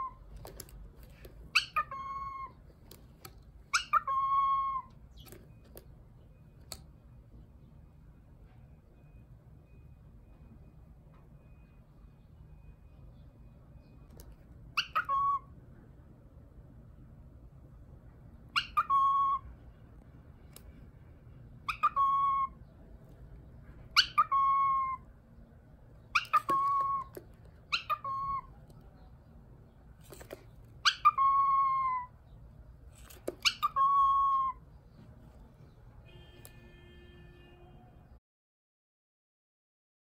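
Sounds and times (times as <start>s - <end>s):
cockatiel whistling calls: 1.5s - 2.6s, 3.7s - 5.4s, 14.8s - 15.5s, 18.5s - 19.5s, 21.6s - 22.6s, 23.9s - 25.0s, 26.1s - 28.5s, 30.8s - 32.1s, 33.4s - 34.6s.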